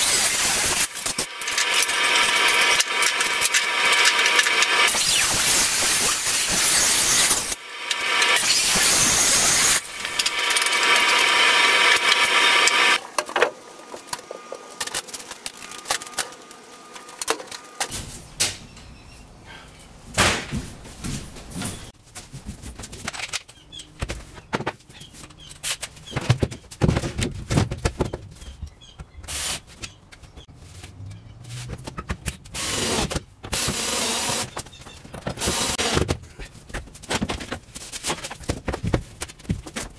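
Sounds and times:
power saw cutting plywood: 0.0s - 13.0s.

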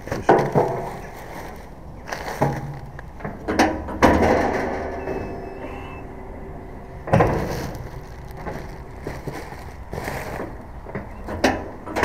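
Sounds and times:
metallic clunks of waste bin inlet: 2.4s - 5.4s.

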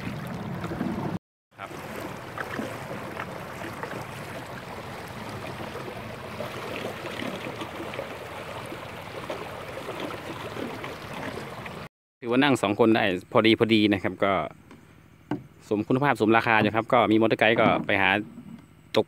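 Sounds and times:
water lapping along boat hull: 0.0s - 11.9s, 16.4s - 18.8s.

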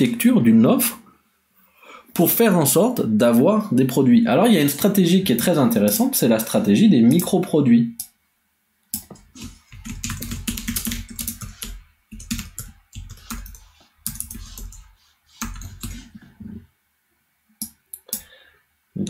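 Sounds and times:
typing on computer keyboard: 9.0s - 16.1s.

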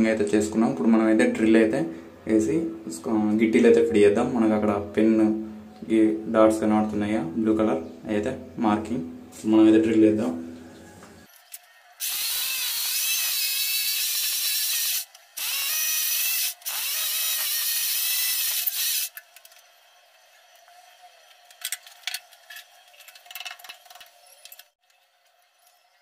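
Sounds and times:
electric drill boring into tile: 12.0s - 19.1s.

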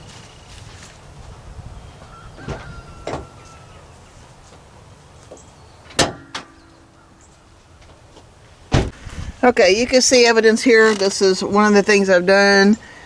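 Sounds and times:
car hood latch clunk: 5.9s - 6.6s, 8.7s - 8.9s.

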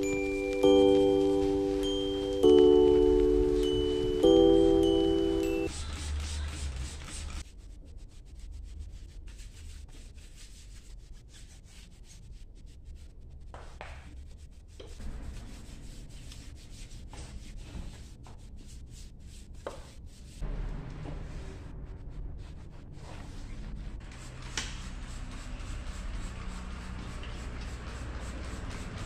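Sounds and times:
towel wiping a rim: 14.1s - 20.4s, 22.4s - 29.0s
low bump: 20.4s - 24.0s
brush scrubbing a steel wheel: 22.4s - 29.0s.

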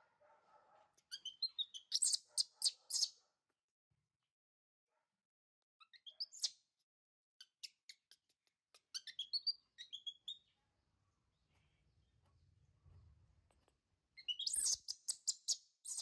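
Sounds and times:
baby monkey squeaky calls: 1.1s - 3.2s, 5.8s - 6.6s, 7.4s - 10.4s, 14.2s - 16.0s.

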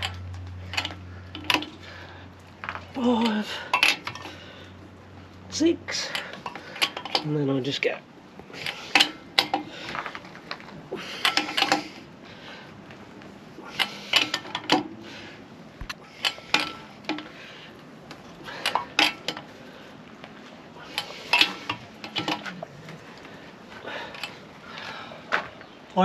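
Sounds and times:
wheel brace clinking on nuts: 0.0s - 4.7s, 5.9s - 12.1s, 13.6s - 19.6s, 20.4s - 22.8s.

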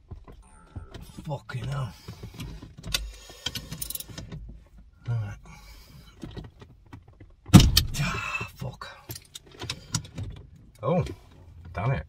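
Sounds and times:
man grunting with effort: 7.9s - 8.5s.

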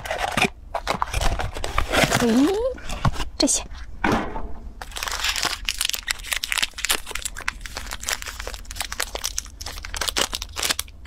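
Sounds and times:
plastic wrapper crinkling: 4.8s - 11.0s.

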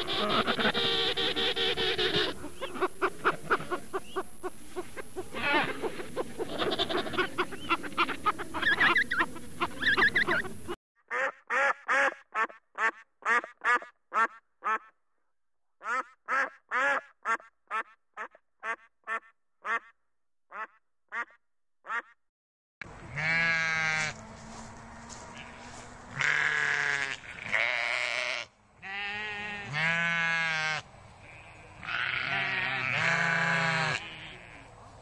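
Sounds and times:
goose honking: 0.0s - 4.2s
overlapping animal calls: 0.0s - 14.9s
sheep bleating: 6.5s - 7.2s, 23.0s - 24.2s, 25.0s - 34.7s.

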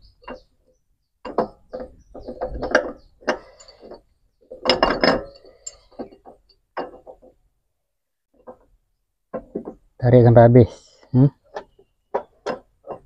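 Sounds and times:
metallic clicks and clinks of engine parts: 1.2s - 7.4s.

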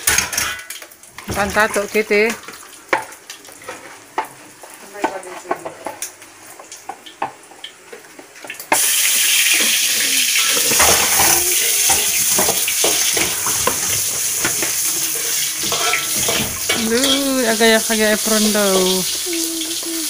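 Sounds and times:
plastic dishes clattering in sink: 0.0s - 4.3s, 10.4s - 17.3s
tap water running into sink: 0.0s - 4.3s, 5.0s - 20.0s
dishes being scrubbed: 8.8s - 20.0s.

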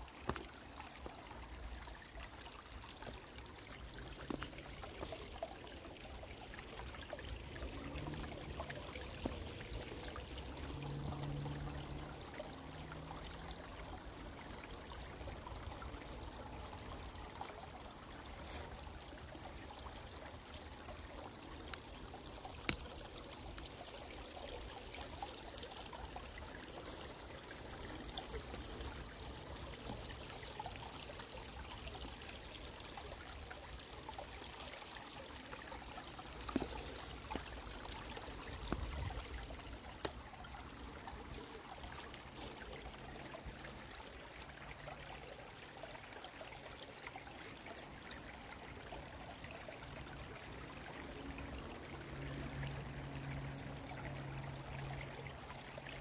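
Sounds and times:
creek water babbling over stones: 0.0s - 56.0s.

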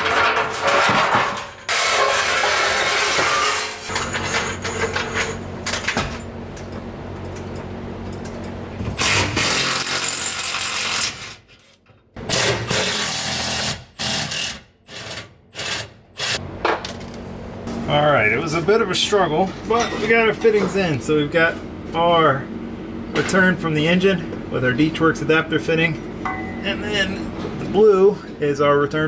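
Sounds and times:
handheld power tool running: 8.9s - 11.4s, 12.3s - 16.4s.

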